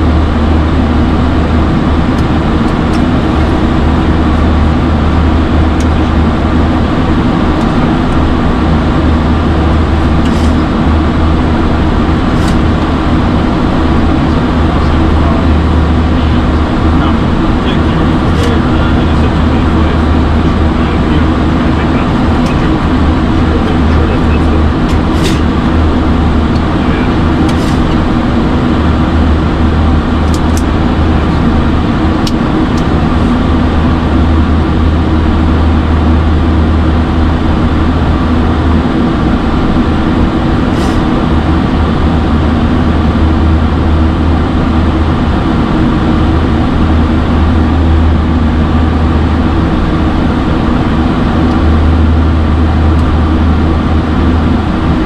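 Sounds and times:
aircraft cockpit rush: 0.0 - 55.0
low hum: 0.0 - 55.0.

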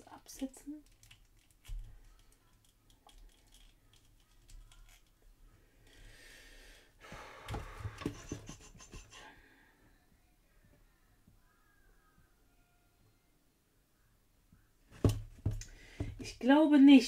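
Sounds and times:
small plastic clicks of toy joints: 0.8 - 5.2.

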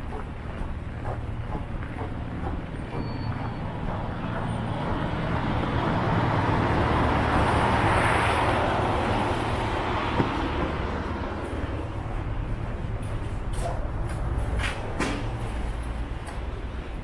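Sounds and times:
low traffic hum: 0.0 - 17.0
vehicle passing on wet street: 3.7 - 14.7.

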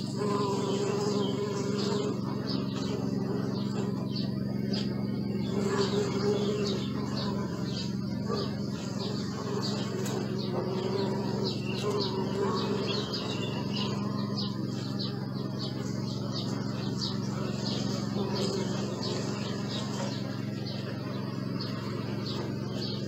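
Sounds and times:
birds chirping: 0.0 - 23.0
honeybees buzzing: 0.0 - 23.0
nearby bee humming: 0.0 - 23.0.

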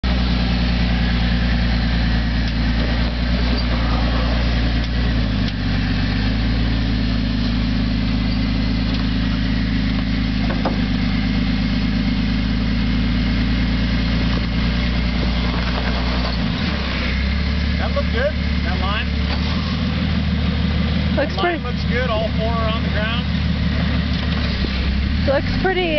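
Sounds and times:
engine running under load: 0.0 - 25.9.

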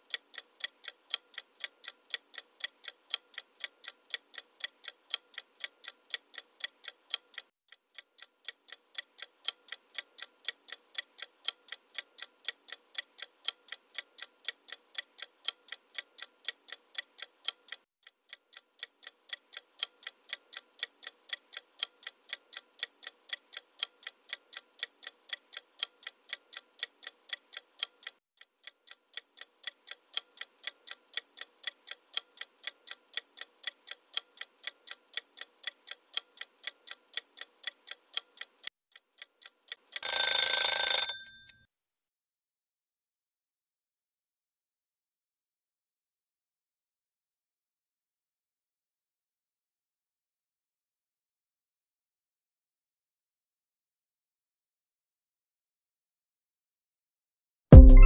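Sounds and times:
clock ticking: 0.0 - 41.5, 57.7 - 58.0.

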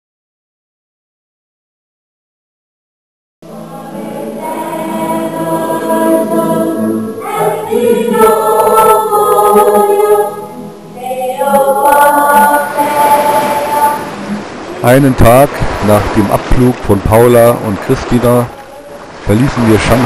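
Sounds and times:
choir singing held chords: 3.4 - 17.7.

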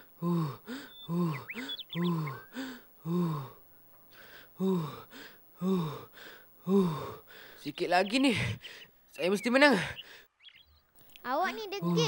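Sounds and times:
faint bird chirps: 0.7 - 2.8, 7.7 - 11.2
cartoon character grunting: 11.7 - 12.0.

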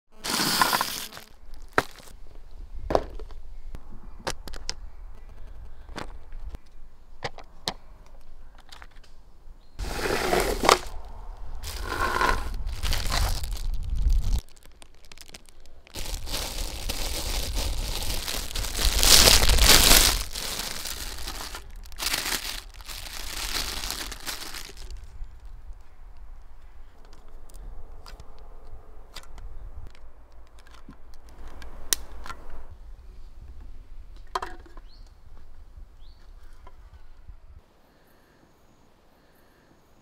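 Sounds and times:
plastic bag crinkling and tearing: 0.2 - 2.1, 11.6 - 25.1.

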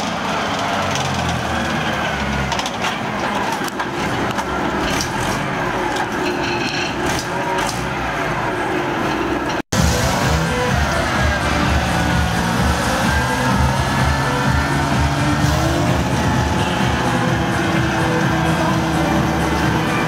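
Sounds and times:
vehicle engine running: 9.3 - 20.0.

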